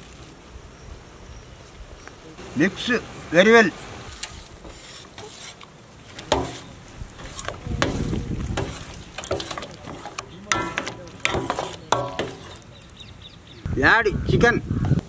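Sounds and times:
wet stirring and squishing: 0:04.1 - 0:13.5.

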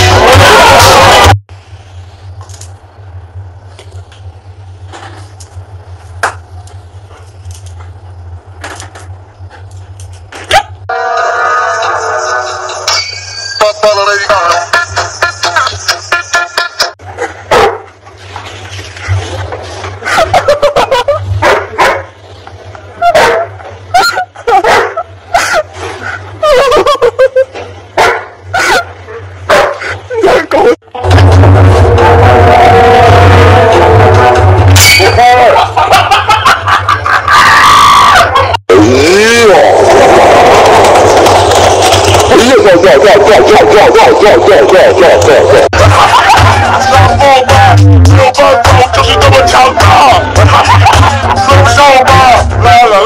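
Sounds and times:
steady low hum: 0:01.5 - 0:10.9
dog barking and yipping: 0:10.5 - 0:10.8, 0:17.5 - 0:17.9, 0:21.0 - 0:22.2, 0:23.0 - 0:25.5, 0:28.0 - 0:29.9.

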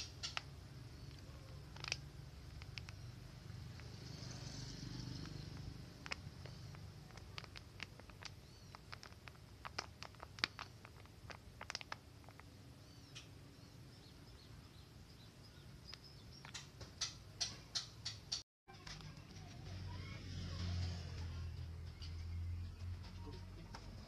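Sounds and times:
plastic cup crackling: 0:00.0 - 0:12.8.

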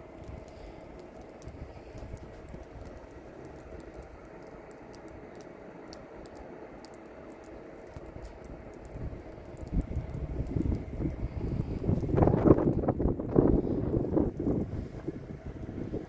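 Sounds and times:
wind rumbling on microphone: 0:00.0 - 0:04.3, 0:07.9 - 0:16.0
faint ticks: 0:00.2 - 0:12.9.

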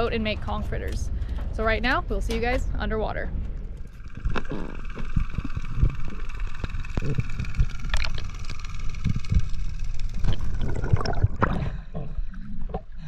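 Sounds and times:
steady hum: 0:00.0 - 0:13.0
underwater rumble: 0:00.0 - 0:13.0.

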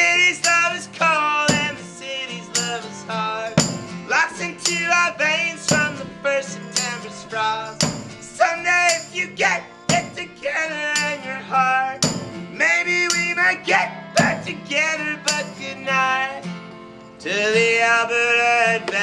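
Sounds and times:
acoustic rock band playing: 0:00.0 - 0:19.0
steady struck beat: 0:01.5 - 0:01.8, 0:03.6 - 0:04.0, 0:05.7 - 0:06.1, 0:07.8 - 0:08.3, 0:09.9 - 0:10.2, 0:12.0 - 0:12.4, 0:14.2 - 0:14.6.

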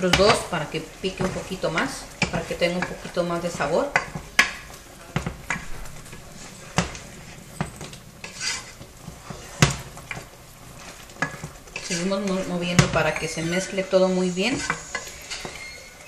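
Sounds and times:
wooden spoon knocking pot: 0:00.0 - 0:07.0, 0:11.2 - 0:13.4.

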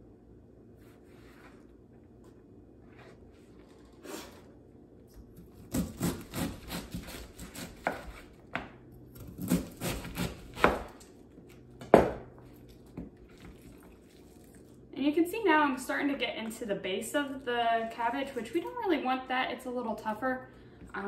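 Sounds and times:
knife slicing cabbage: 0:05.2 - 0:08.4, 0:09.1 - 0:11.1.

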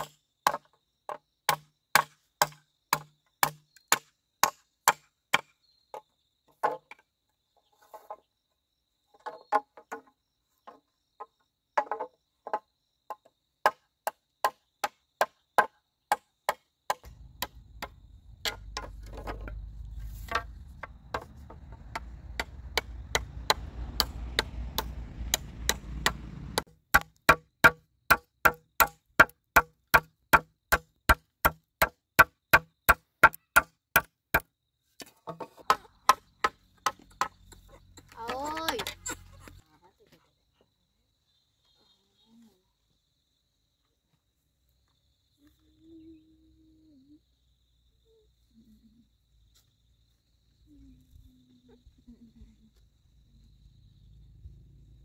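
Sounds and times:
low rumbling noise: 0:17.1 - 0:26.6.

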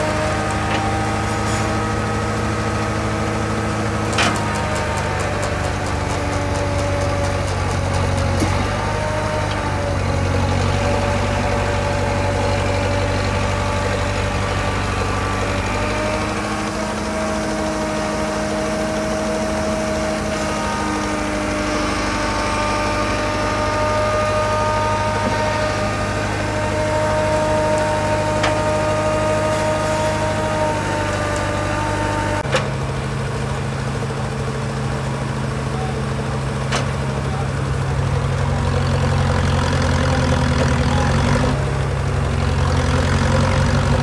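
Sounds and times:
power shovel engine running: 0:00.0 - 0:44.0
whining winch gearing: 0:00.0 - 0:44.0.

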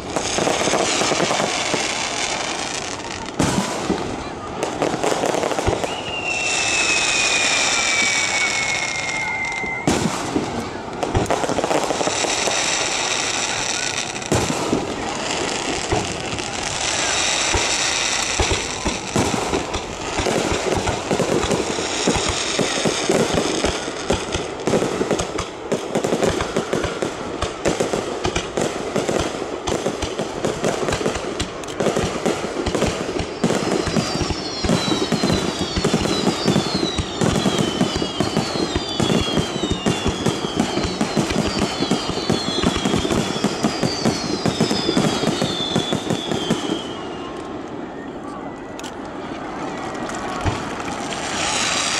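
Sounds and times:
fireworks whistling: 0:00.0 - 0:49.3, 0:49.9 - 0:51.9
fireworks bursting and crackling: 0:00.0 - 0:51.9.

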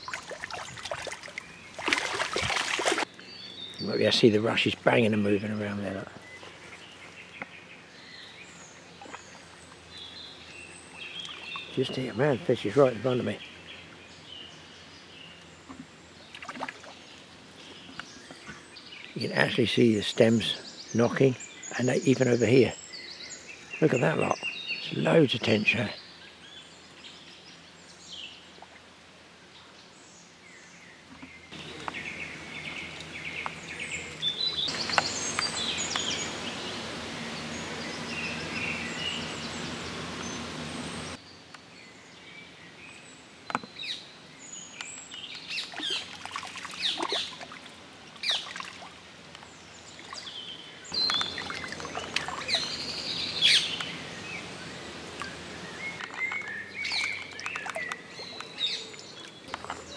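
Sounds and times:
fish splashing in water: 0:00.0 - 0:03.1, 0:16.3 - 0:17.0, 0:45.6 - 0:49.0, 0:51.0 - 0:54.1, 0:55.0 - 0:59.9
small birds chirping: 0:00.0 - 0:59.9.

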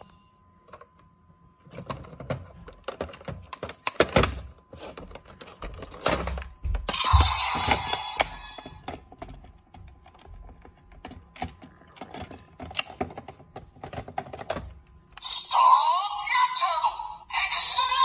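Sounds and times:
plastic toy parts clicking: 0:10.0 - 0:14.7.

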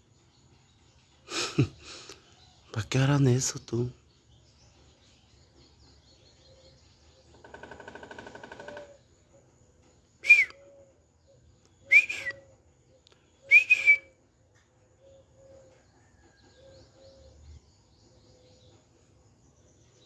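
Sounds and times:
woodpecker rattling call: 0:06.1 - 0:09.5
woodpecker sharp falling calls: 0:07.3 - 0:09.0.

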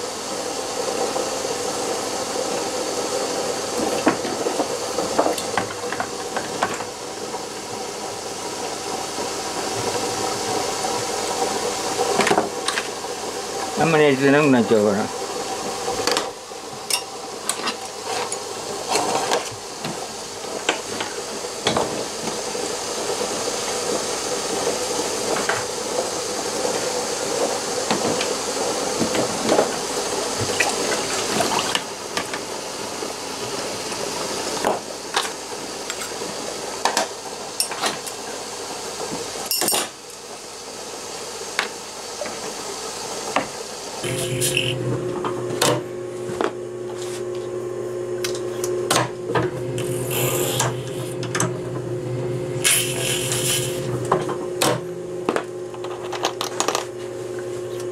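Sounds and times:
steady hiss: 0:52.6 - 0:53.9.

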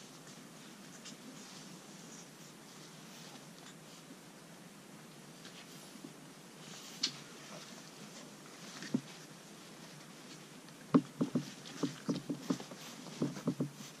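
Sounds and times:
puppies scuffling: 0:06.6 - 0:14.0.

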